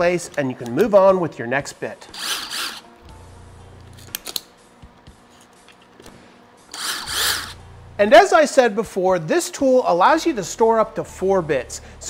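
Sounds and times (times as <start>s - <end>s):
rasping bursts: 2.1s - 2.8s, 6.7s - 7.6s
bits snapping into bit holder: 3.8s - 4.5s.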